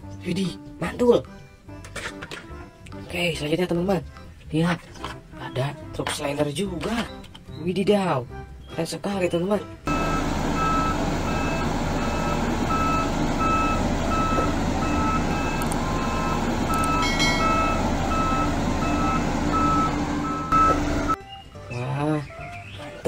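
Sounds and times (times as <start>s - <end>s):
diesel engine running: 9.9s - 21.2s
reversing alarm beeping: 9.9s - 21.2s.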